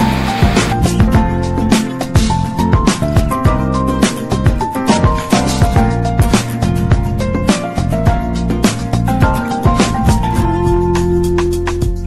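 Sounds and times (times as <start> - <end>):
background music with drum beat: 0.0 - 12.0.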